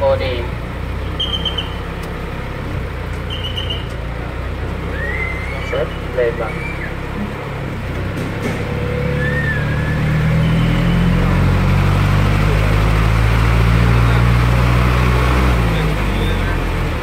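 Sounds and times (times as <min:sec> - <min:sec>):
vehicle engine rumbling: 0:00.0 - 0:17.0.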